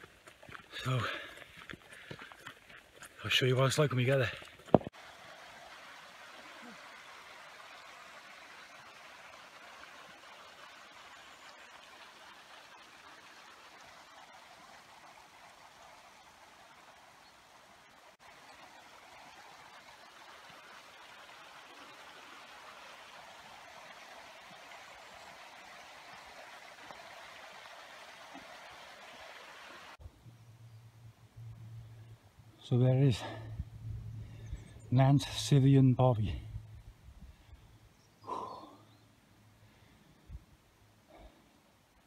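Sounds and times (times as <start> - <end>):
mountain stream rushing: 0.0 - 30.0.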